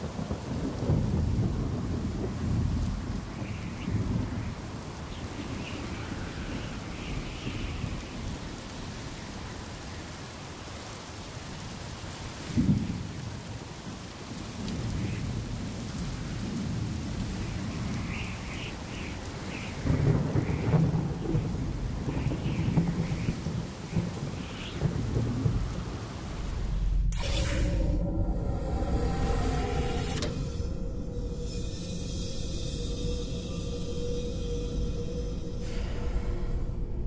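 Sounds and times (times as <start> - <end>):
sharp thunderclap: 0.0 - 4.6, 19.7 - 26.5
rolling thunder: 0.0 - 9.8, 12.4 - 27.1
steady rain: 0.0 - 36.6.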